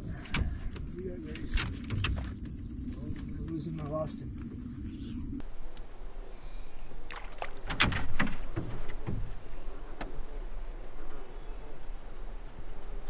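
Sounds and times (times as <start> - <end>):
knocks and taps in a canoe: 7.1 - 10.3.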